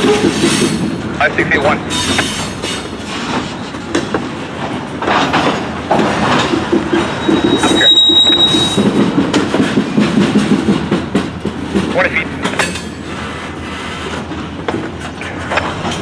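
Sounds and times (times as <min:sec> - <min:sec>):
freight train rumbling past: 0:00.0 - 0:16.0
wheels clicking over rail joints: 0:01.8 - 0:16.0
high wheel squeal: 0:06.9 - 0:09.0.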